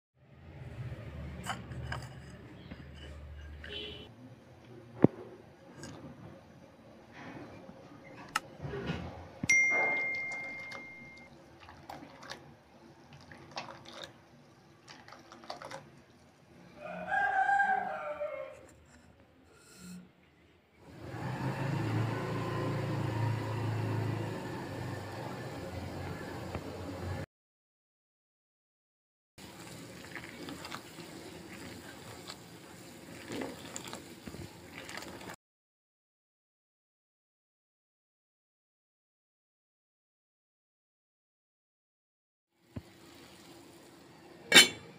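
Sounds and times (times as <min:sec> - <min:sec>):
bright bell ding: 0:09.5 - 0:11.3
boiling water: 0:09.5 - 0:17.1, 0:29.4 - 0:35.4, 0:42.6 - 0:44.9
ladle clinking in saucepan: 0:44.5 - 0:44.9.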